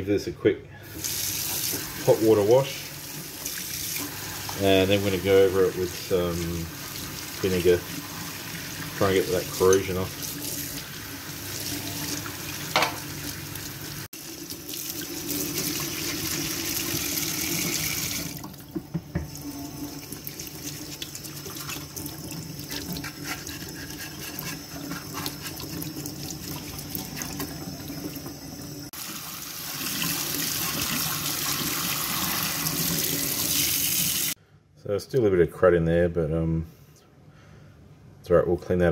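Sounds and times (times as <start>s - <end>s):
tap water splashing on metal: 12.7s - 13.1s.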